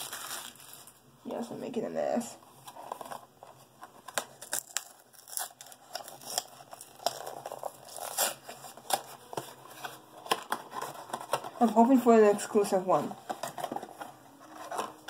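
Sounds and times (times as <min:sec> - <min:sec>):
foil packaging tearing and crinkling: 0:00.0 - 0:01.0, 0:04.0 - 0:11.7.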